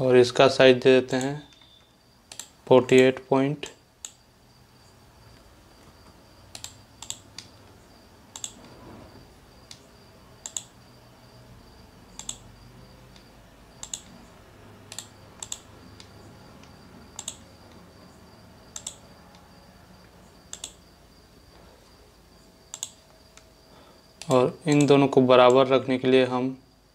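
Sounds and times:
faint high whine: 0.0 - 26.9
computer mouse clicking: 1.1 - 2.6, 4.0 - 4.2, 5.3 - 8.8, 10.4 - 10.8, 12.1 - 12.5, 13.1 - 14.2, 14.9 - 17.8, 18.7 - 19.1, 20.5 - 20.8, 22.7 - 23.5, 24.2 - 25.6.

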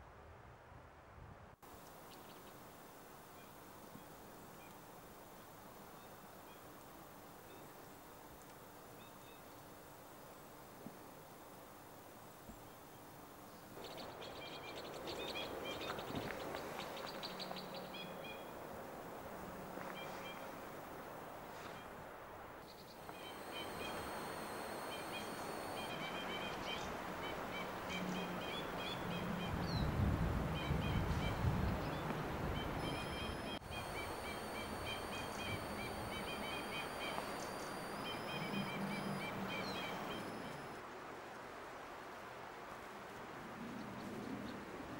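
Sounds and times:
birds calling: 12.5 - 40.8.

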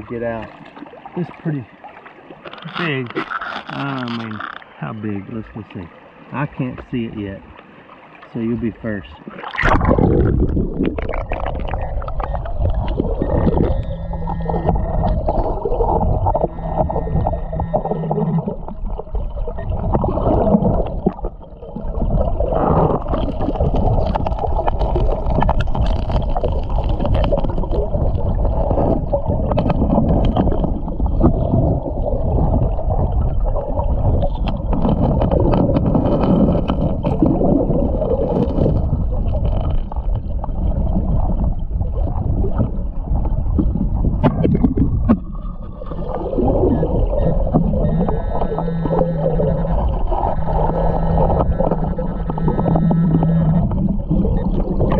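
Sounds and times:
muffled underwater rumble: 0.0 - 54.9
steady two-pitched tone: 9.8 - 21.5, 46.4 - 54.9.

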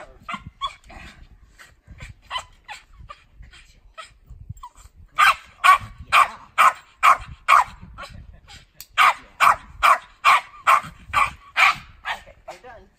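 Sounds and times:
dog barking: 5.2 - 7.8, 9.0 - 12.3.

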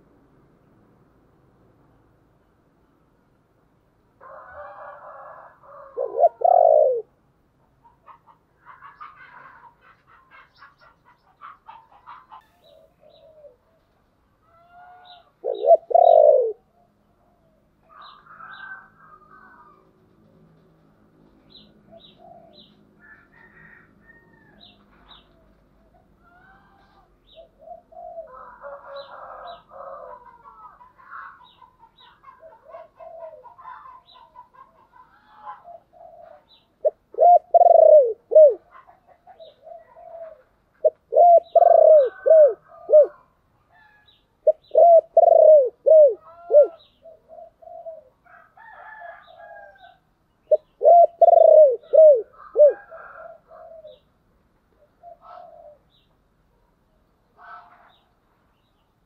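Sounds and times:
dove cooing: 4.2 - 7.2, 7.8 - 19.8, 21.5 - 54.1, 54.8 - 56.0
faint bird calls: 7.7 - 20.1, 21.4 - 54.1.

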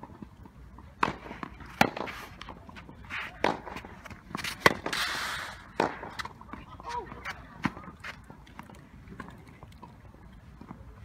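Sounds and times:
tennis ball bouncing: 0.8 - 5.0
tennis ball struck by rackets: 0.9 - 5.1, 5.7 - 6.4.

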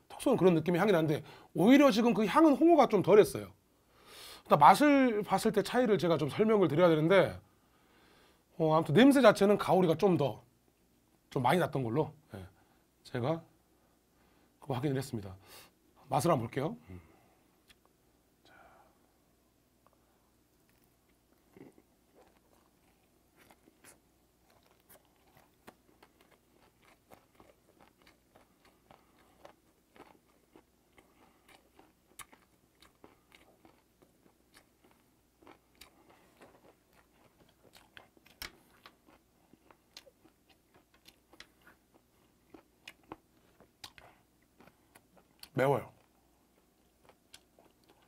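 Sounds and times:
person chewing: 19.8 - 48.0.

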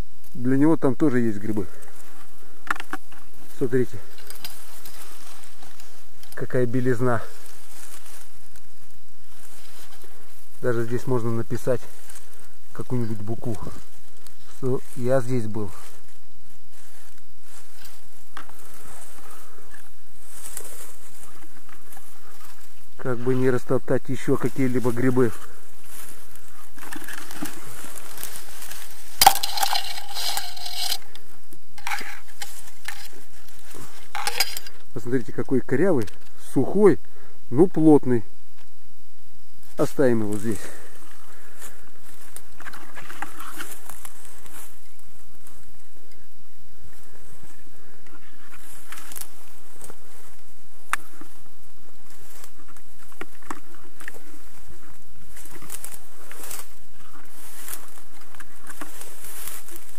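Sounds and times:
dry undergrowth crunching and rustling: 0.0 - 36.0, 39.6 - 46.0, 46.8 - 59.9
twigs snapping underfoot: 4.1 - 6.4.

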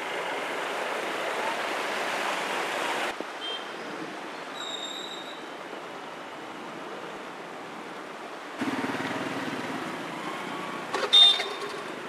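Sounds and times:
street traffic noise: 0.0 - 12.0
car horn honk: 11.0 - 11.6.

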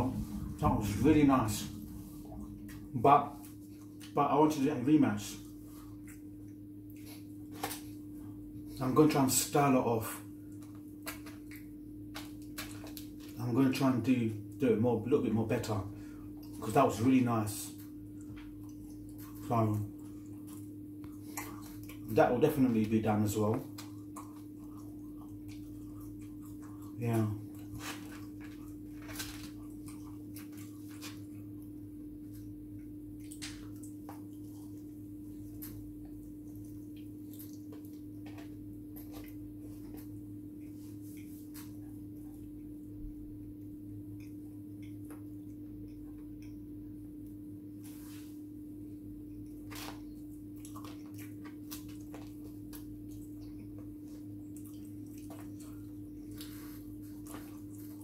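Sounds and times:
steady low hum: 0.0 - 58.0
wet chewing: 5.4 - 8.8, 10.3 - 13.4, 17.7 - 43.0, 49.0 - 58.0.

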